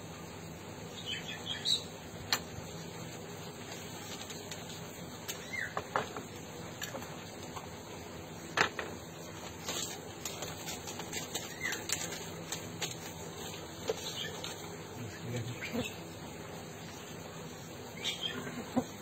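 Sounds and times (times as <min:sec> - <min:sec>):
bird chirps: 0:00.9 - 0:01.9, 0:05.3 - 0:05.8, 0:18.0 - 0:18.6
paper rustling: 0:09.3 - 0:14.8.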